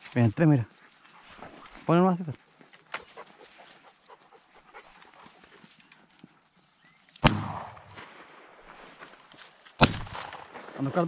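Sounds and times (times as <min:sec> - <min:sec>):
shotgun shots with echo: 0:07.2 - 0:08.6, 0:09.8 - 0:11.0.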